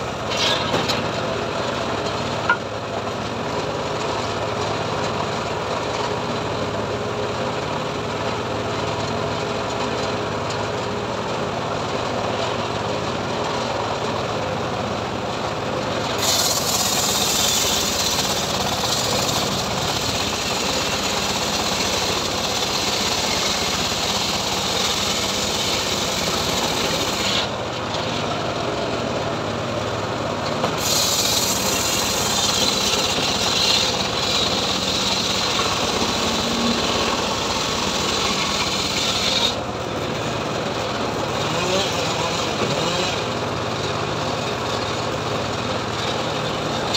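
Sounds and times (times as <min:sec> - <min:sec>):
saw blade cutting log: 0:00.0 - 0:01.2, 0:16.1 - 0:28.3, 0:30.6 - 0:43.5, 0:45.8 - 0:46.9
engine running: 0:00.0 - 0:46.9.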